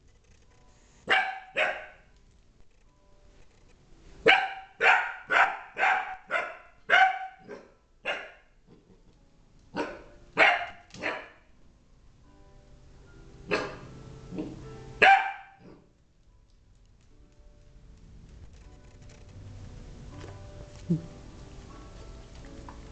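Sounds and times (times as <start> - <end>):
puppy yapping: 1.1 - 2.0, 4.3 - 8.5, 9.8 - 11.4, 13.5 - 13.8, 14.4 - 15.8.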